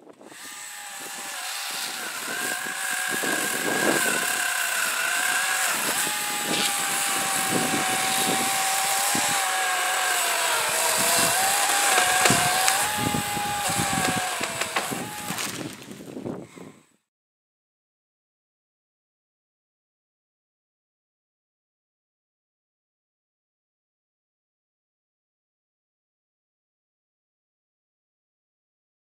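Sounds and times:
chainsaw cutting branches: 0:00.0 - 0:16.2
wood cracking: 0:00.6 - 0:16.1.

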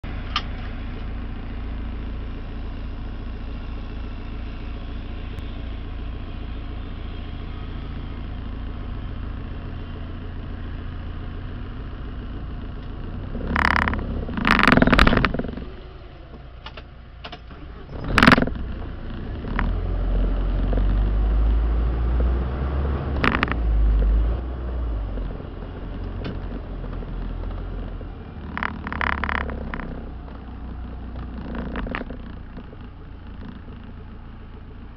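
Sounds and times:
car engine rumbling: 0:00.0 - 0:34.9
car jolts and rattles: 0:12.4 - 0:21.2, 0:23.0 - 0:34.9.

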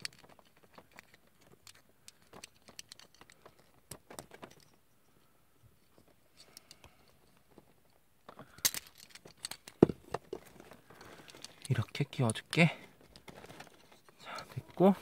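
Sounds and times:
plastic parts clicking and tapping: 0:00.0 - 0:04.8, 0:08.2 - 0:14.9.

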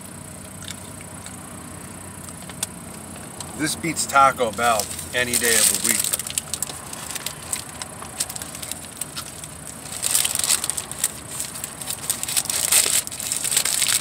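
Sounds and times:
paper wrapper crinkling: 0:04.4 - 0:14.0.

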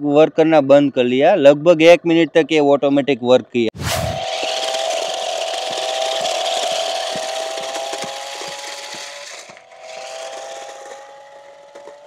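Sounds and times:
toy car electric motor whining: 0:04.1 - 0:12.0
tyres crunching on gravel: 0:05.7 - 0:12.0.

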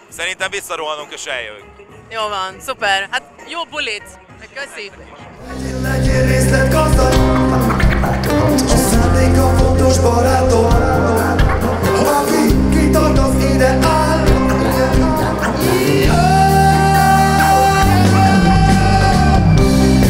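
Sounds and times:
bass guitar: 0:05.4 - 0:20.0
electric guitar: 0:05.4 - 0:20.0
man singing into microphone: 0:05.4 - 0:20.0.

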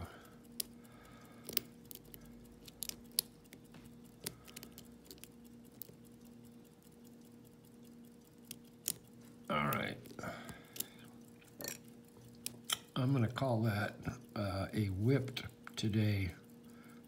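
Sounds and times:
faint steady hum: 0:00.0 - 0:17.0
lock pick clicking and scraping: 0:01.4 - 0:03.6.

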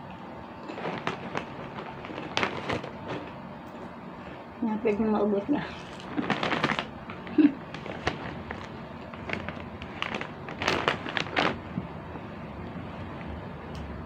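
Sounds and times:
plastic bag crinkling: 0:00.6 - 0:03.4, 0:05.6 - 0:11.8
crunching pork rinds: 0:05.8 - 0:11.7.

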